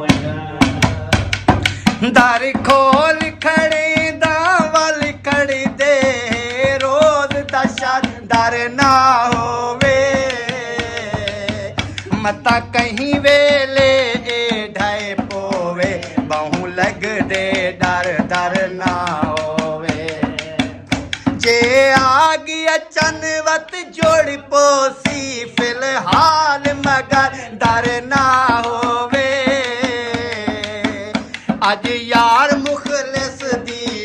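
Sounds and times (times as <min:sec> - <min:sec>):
hand clapping: 0:00.0 - 0:34.0
hand drum beaten by hand: 0:00.0 - 0:34.0
voices singing folk song: 0:00.0 - 0:34.0.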